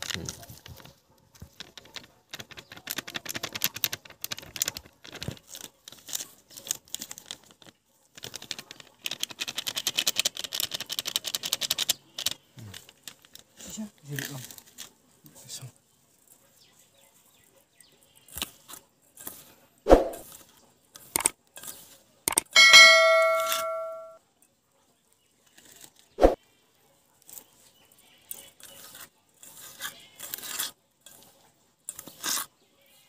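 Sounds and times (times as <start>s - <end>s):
metal bowl ringing: 22.5s - 24.2s.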